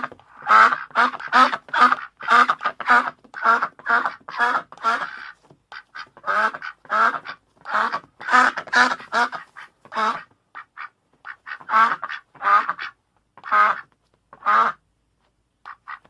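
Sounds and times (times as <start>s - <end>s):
duck quacking: 0.0s - 14.8s, 15.6s - 16.0s.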